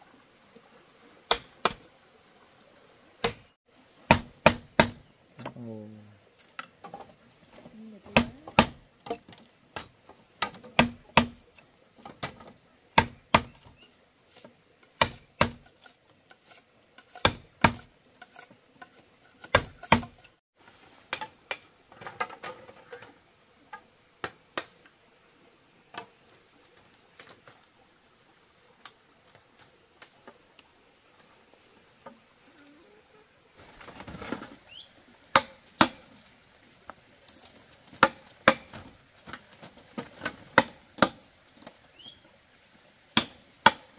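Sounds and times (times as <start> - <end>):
wooden knocks on bamboo: 4.1 - 5.6, 8.0 - 11.4, 12.0 - 13.7, 14.4 - 15.7, 17.0 - 17.9, 18.9 - 20.3, 35.3 - 36.0, 37.9 - 39.4, 40.0 - 41.2.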